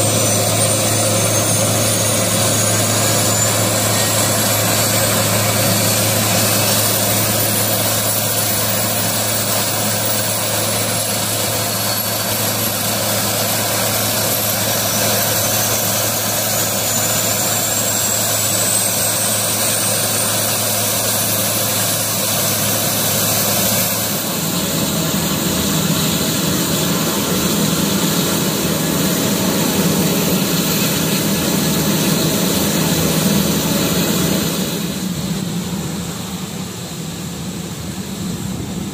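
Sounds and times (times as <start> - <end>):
turboprop engine whine: 0.0 - 38.9.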